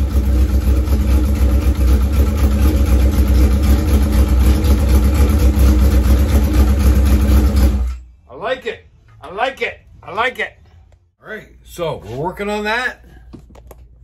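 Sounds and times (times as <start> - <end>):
motorcycle engine idling: 0.0 - 7.4.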